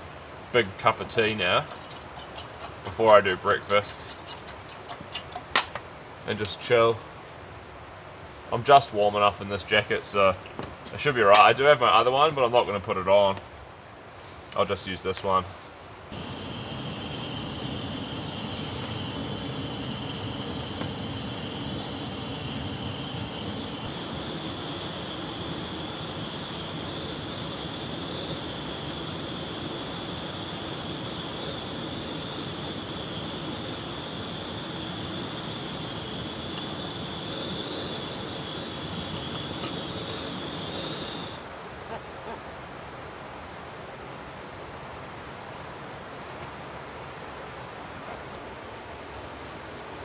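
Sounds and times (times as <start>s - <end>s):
gas stove burner hissing: 0.0s - 6.8s, 16.1s - 41.6s.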